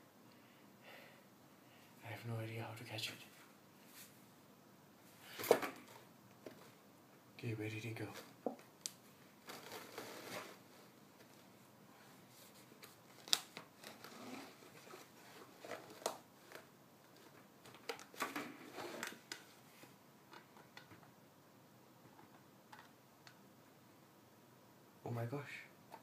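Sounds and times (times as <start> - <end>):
soft plastic rustles: 5.1 - 6.8, 7.7 - 21.1.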